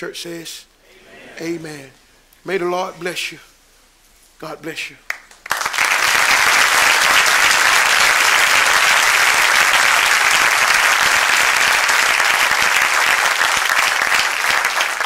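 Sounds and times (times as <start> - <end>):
audience applauding: 5.1 - 15.0.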